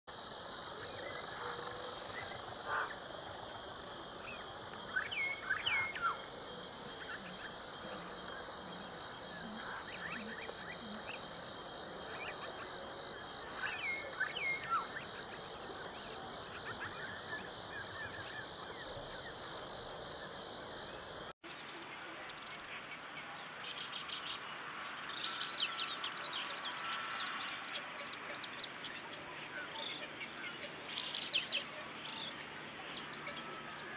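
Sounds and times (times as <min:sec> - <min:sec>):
high-pitched insect drone: 0:21.4 - 0:33.9
bird chirps: 0:21.5 - 0:33.9.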